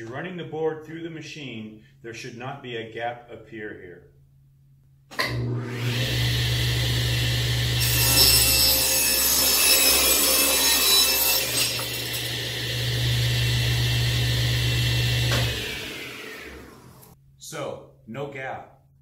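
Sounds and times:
table saw motor hum: 5.2 - 17.2
saw blade ripping a board: 7.8 - 12.3.

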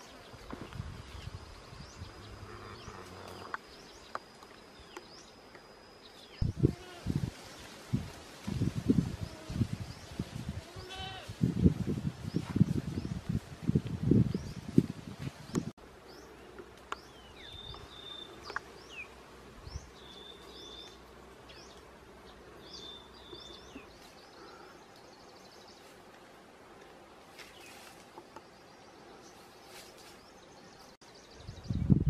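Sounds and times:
birds chirping and whistling: 17.0 - 21.8.

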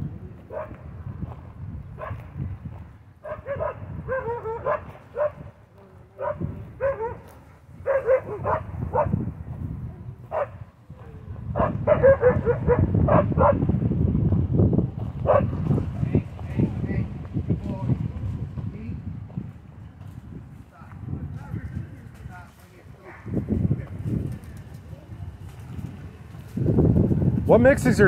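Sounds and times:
dogs barking: 0.5 - 0.9, 2.0 - 2.3, 3.2 - 5.6, 6.2 - 9.3, 10.3 - 10.7, 11.5 - 13.7, 15.2 - 15.6.

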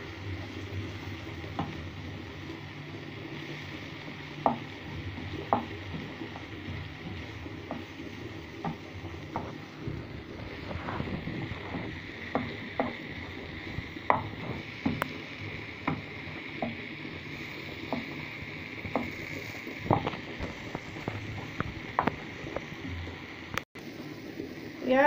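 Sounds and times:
steady hiss: 0.0 - 25.0
wooden spoon scraping frying pan: 4.4 - 16.8.

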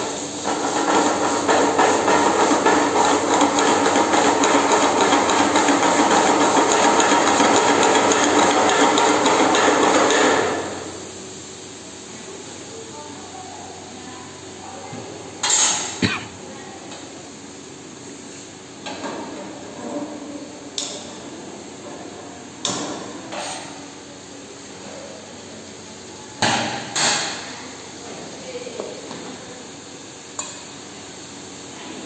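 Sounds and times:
metal spoon clanking on pan: 15.4 - 16.0.

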